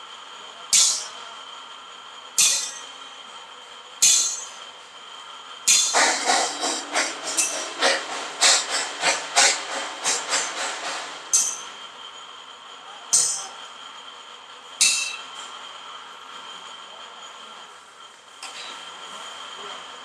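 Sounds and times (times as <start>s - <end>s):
metal clanking on steel: 0.7s - 1.2s, 2.4s - 3.0s, 4.0s - 4.6s, 5.7s - 11.8s, 13.1s - 13.6s, 14.8s - 15.4s.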